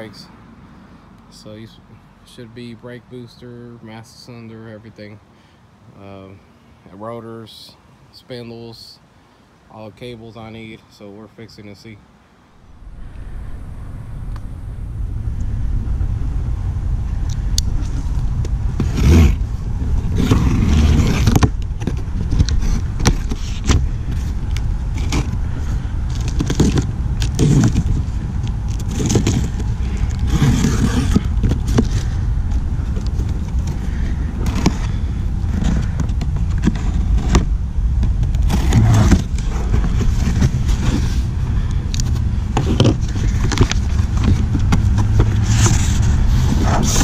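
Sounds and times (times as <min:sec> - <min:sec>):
wind on microphone: 0:12.5 - 0:47.0
cardboard boxes being handled: 0:20.1 - 0:41.4, 0:42.0 - 0:47.0.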